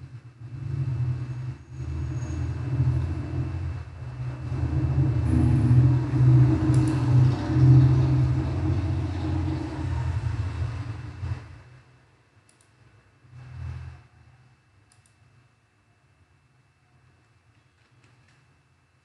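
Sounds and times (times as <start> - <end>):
low steady rumble: 0.0 - 17.5
faint clicks: 6.7 - 7.0, 12.4 - 12.8, 14.9 - 15.3.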